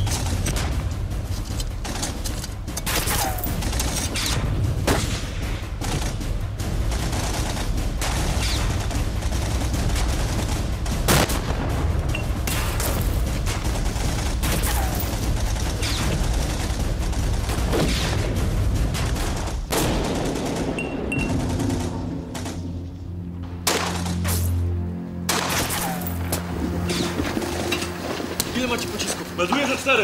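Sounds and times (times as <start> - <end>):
rifle and machine-gun fire: 2.8 - 22.8.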